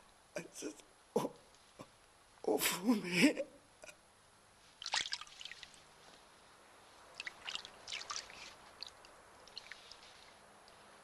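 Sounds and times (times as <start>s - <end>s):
water splashing and dribbling: 4.8s - 5.9s, 7.1s - 10.4s.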